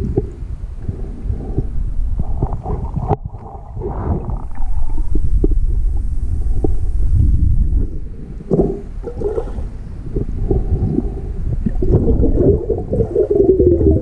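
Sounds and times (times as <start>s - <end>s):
underwater rumbling and gurgling: 0.0s - 14.0s
small underwater clicks: 4.4s - 6.8s.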